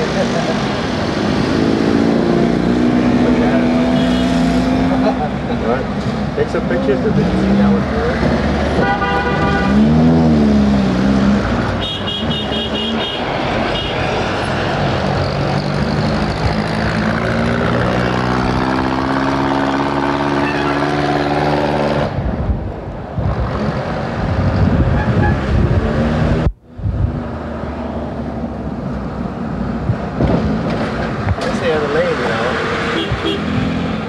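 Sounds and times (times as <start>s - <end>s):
traffic: 0.0s - 34.0s
car horn toots: 8.8s - 10.0s, 11.8s - 13.2s, 24.9s - 25.4s, 33.0s - 33.5s.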